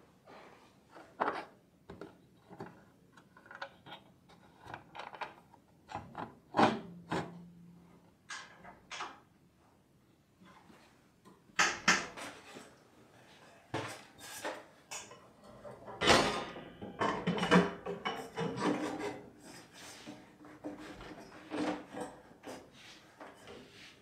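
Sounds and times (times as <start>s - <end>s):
knocks and clicks of printing press: 16.0s - 18.6s.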